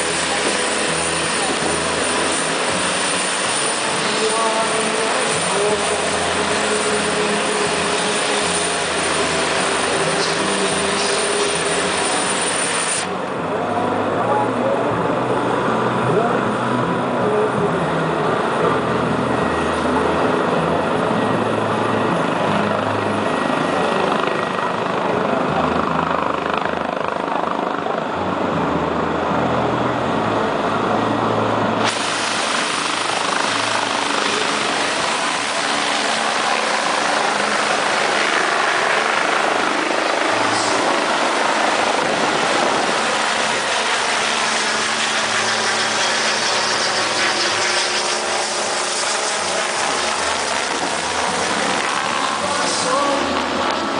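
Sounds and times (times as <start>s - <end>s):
helicopter engines and rotor: 0.0s - 53.9s.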